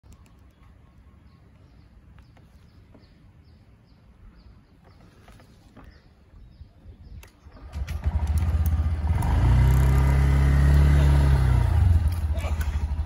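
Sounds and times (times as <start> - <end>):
bird chirping: 0.0 - 9.0.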